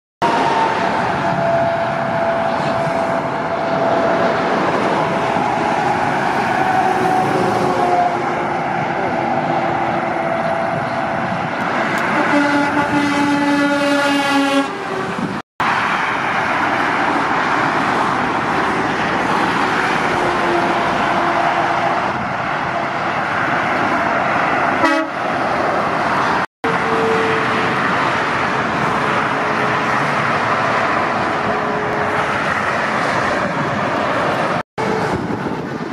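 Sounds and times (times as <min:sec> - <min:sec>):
motorway traffic passing: 0:00.2 - 0:35.9
truck horn blowing: 0:12.0 - 0:15.1, 0:24.8 - 0:25.2, 0:26.6 - 0:27.5.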